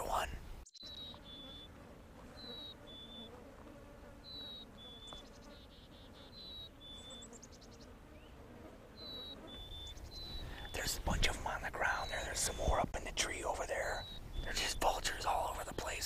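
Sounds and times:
bird trills: 0.7s - 3.4s, 4.2s - 8.3s, 9.0s - 11.0s, 13.7s - 14.5s.

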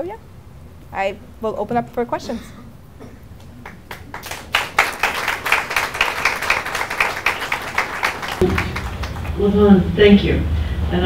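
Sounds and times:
audience applauding: 3.4s - 9.6s.

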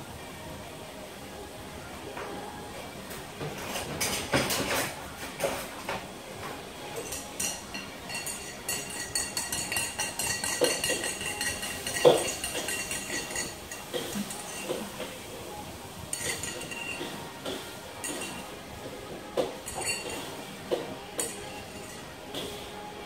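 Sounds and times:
hard objects clinking and knocking: 7.0s - 15.2s, 16.1s - 18.5s, 19.4s - 20.2s.

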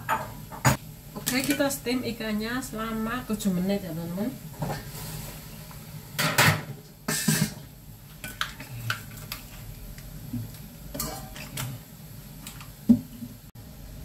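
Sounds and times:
metal cookware clattering: 10.9s - 11.8s.

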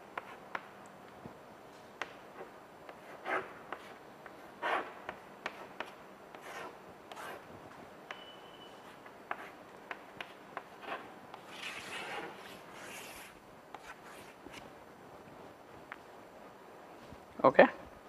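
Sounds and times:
chalk scraping on blackboard: 2.4s - 7.4s, 8.8s - 14.6s
chalk tapping on blackboard: 2.9s - 7.4s, 8.1s - 11.4s.

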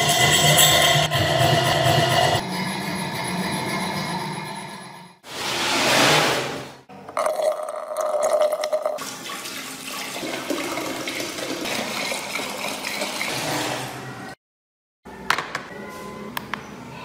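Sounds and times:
water pouring into glass tank: 7.1s - 13.5s.

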